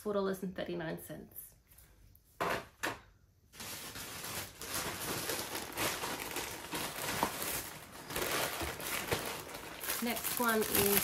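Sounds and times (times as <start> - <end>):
plastic packaging crinkling: 3.5 - 11.0.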